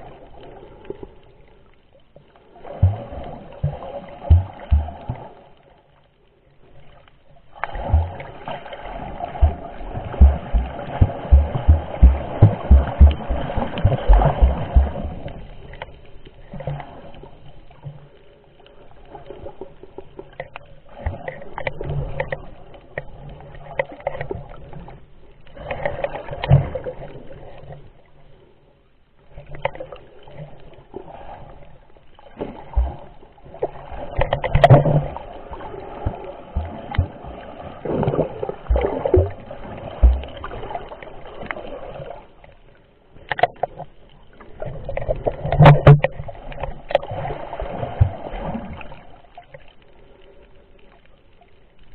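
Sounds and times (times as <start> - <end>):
faint steady hum: 0.0 - 34.0
underwater sloshing and bubbling: 0.0 - 51.9.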